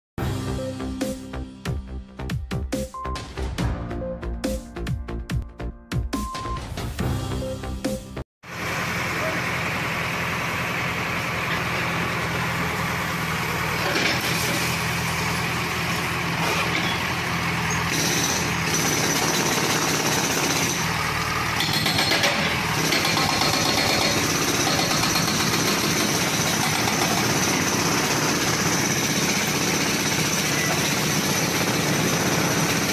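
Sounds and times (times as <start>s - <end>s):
diesel engine running: 8.5s - 32.9s.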